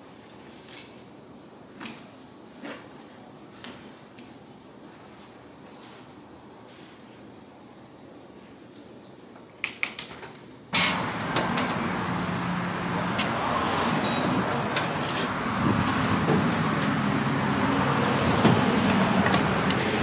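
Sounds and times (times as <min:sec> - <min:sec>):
road traffic noise: 0:10.7 - 0:20.0.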